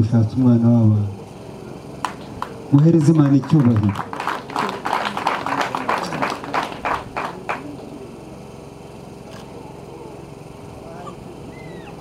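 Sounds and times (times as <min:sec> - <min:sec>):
people clapping in rhythm: 0:02.0 - 0:07.9.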